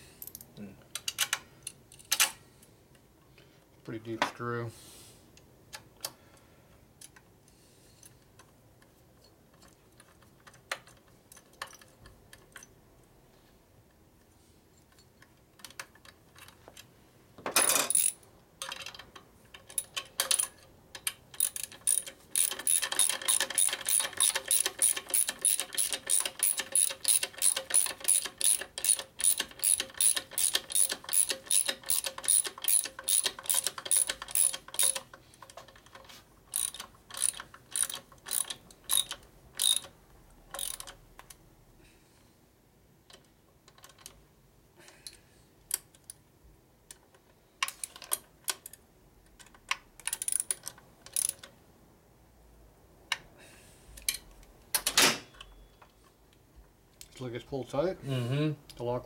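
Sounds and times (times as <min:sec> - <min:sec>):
socket ratchet clicking: 0:17.9 - 0:18.8, 0:19.6 - 0:35.2, 0:36.5 - 0:41.0, 0:50.0 - 0:51.5.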